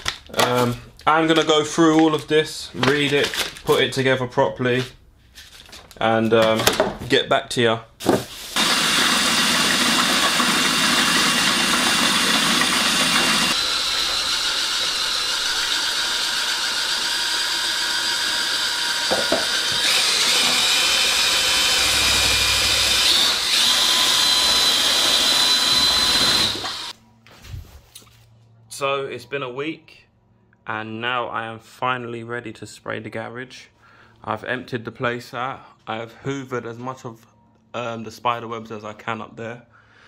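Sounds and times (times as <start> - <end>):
electric drill mixing paint: 8.6 - 27.0.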